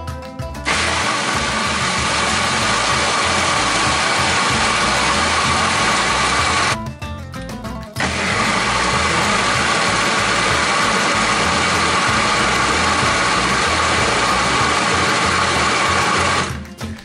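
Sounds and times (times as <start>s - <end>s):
food processor motor whine: 0.7s - 6.8s, 8.0s - 16.6s.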